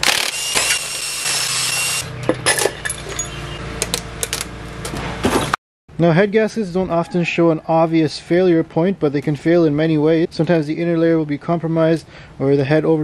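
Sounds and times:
cordless impact wrench running: 0.0s - 2.1s
metallic clinks and clatter: 2.3s - 3.4s.

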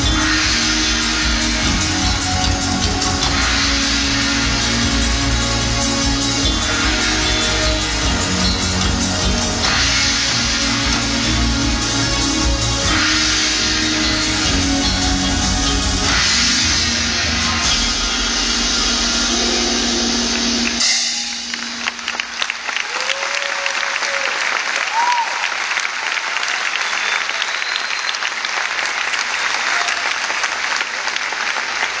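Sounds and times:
live band music with heavy bass: 0.0s - 22.8s
audience applauding and cheering: 0.0s - 32.0s.

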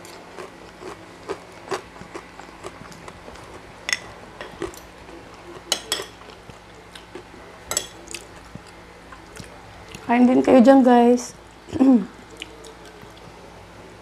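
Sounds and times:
chewing: 0.0s - 10.1s, 12.2s - 13.4s
cutlery clicking on plates: 3.9s - 4.9s, 5.7s - 6.3s, 7.7s - 8.2s.

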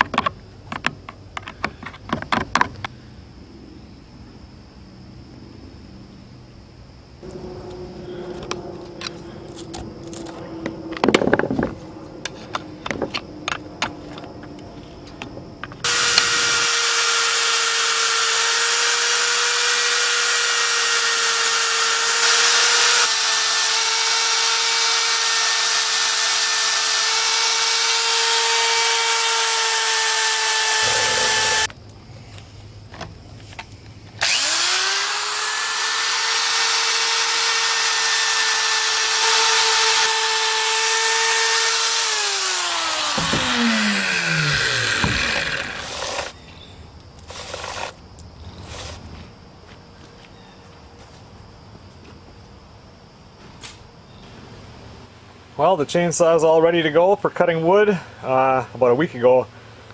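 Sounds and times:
chain sharpener grinding whine: 7.2s - 31.8s, 34.2s - 46.4s, 47.2s - 48.0s.

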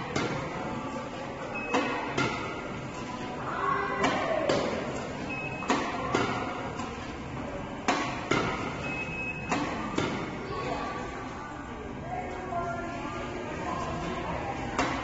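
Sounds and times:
racket hitting shuttlecock: 0.1s - 0.4s, 1.7s - 2.6s, 4.0s - 7.0s, 7.8s - 8.8s, 9.5s - 10.3s.

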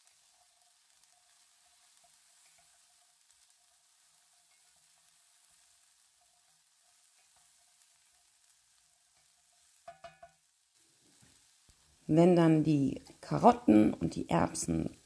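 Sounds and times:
vegetables sizzling in a pan: 0.0s - 15.0s.

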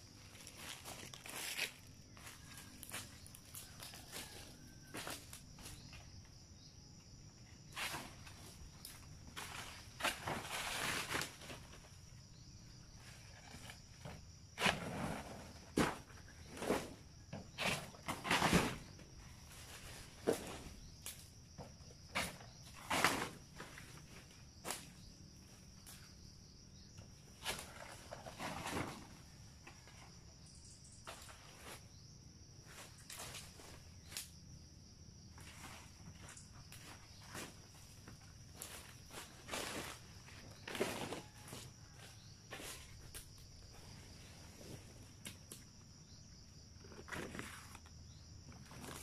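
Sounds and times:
rustling of dry leaves: 0.0s - 5.8s, 7.8s - 12.0s
high insect drone: 0.0s - 49.0s
banana leaves rustling: 0.1s - 5.8s, 7.7s - 12.0s, 35.4s - 45.2s
footsteps: 0.2s - 5.8s
high insect buzz: 29.5s - 49.0s.

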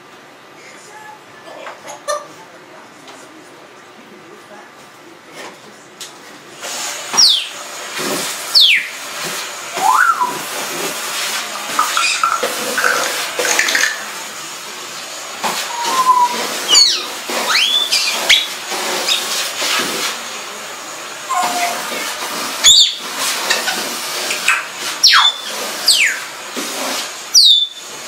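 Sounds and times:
parrot whistling: 7.2s - 7.6s, 8.5s - 9.0s, 9.8s - 10.5s, 11.9s - 12.4s, 15.7s - 18.5s, 21.3s - 21.8s, 22.6s - 23.0s, 25.0s - 26.3s, 27.3s - 27.8s.

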